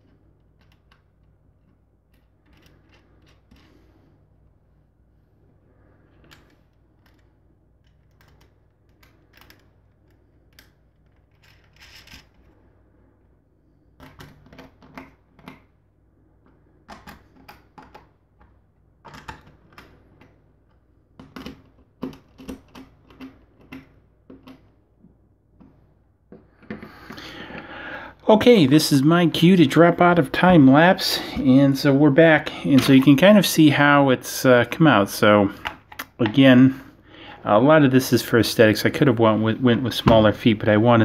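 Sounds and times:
small parts clicking and tapping: 0.0 - 3.9, 6.2 - 12.5
faint low hum: 0.0 - 41.0.

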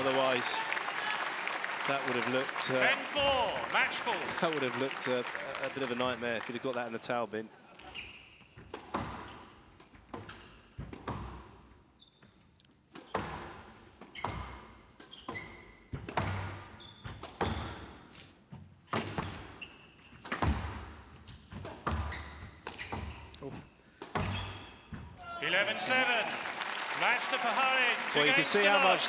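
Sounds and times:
shoe squeaks on wooden floor: 7.8 - 9.5, 11.9 - 12.6, 14.1 - 16.0, 16.7 - 17.8, 19.3 - 20.5, 21.2 - 25.2
squash ball hits echoing: 8.7 - 9.4, 13.0 - 17.9, 20.2 - 23.2, 24.0 - 25.1.

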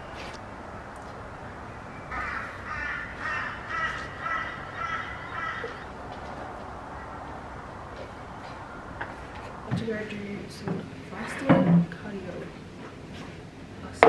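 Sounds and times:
outdoor background hiss: 0.0 - 14.0
crow cawing: 2.1 - 6.0.

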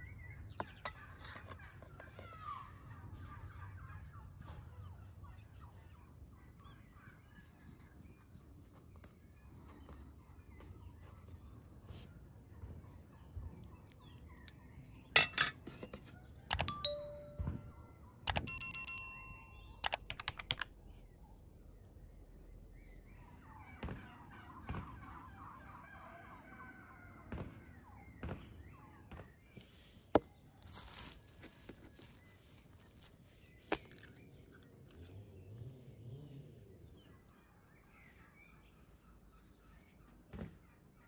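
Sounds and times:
metal spoon clinking on bowl: 16.5 - 17.4, 18.3 - 19.7.

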